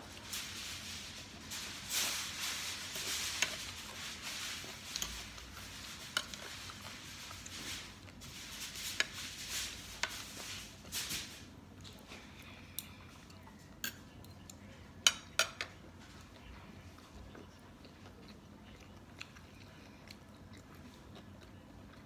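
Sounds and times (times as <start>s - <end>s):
chewing and mouth noises: 15.8s - 22.0s.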